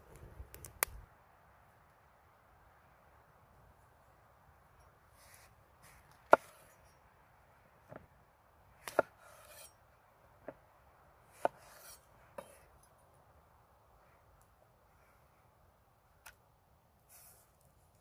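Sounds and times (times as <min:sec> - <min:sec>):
knife scraping on board: 0:06.3 - 0:06.8, 0:08.9 - 0:09.8, 0:11.4 - 0:12.6
knife chopping on wooden board: 0:08.8 - 0:09.7, 0:11.4 - 0:12.5.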